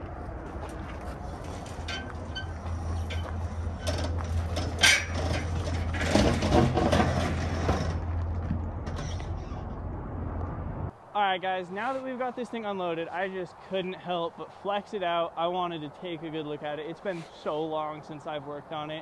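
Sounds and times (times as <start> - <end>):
tires crunching on gravel: 0.0 - 9.8
metal ramp clank: 1.4 - 8.1.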